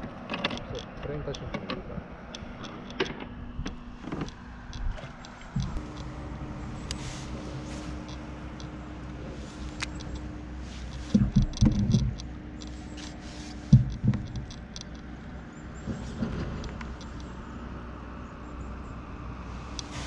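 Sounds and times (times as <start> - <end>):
faint hum: 0.7 - 20.0.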